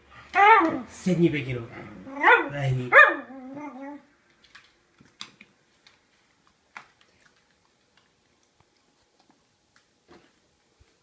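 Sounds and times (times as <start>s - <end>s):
dog whining: 0.3s - 0.9s, 2.0s - 4.1s
dog claws clicking on floor: 4.3s - 9.8s.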